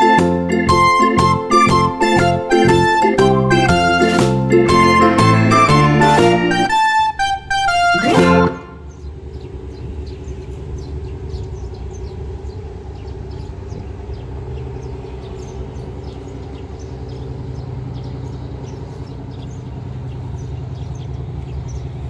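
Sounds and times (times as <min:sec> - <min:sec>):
low engine hum: 0:00.0 - 0:22.0
small birds chirping: 0:08.6 - 0:22.0.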